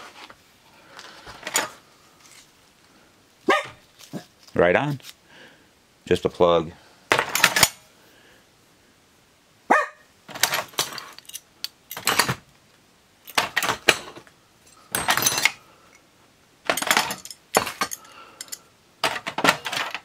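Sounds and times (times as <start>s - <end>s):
metal parts clinking in a drawer: 1.4s - 2.5s, 7.1s - 7.8s, 10.3s - 12.5s, 13.2s - 15.7s, 16.6s - 20.0s.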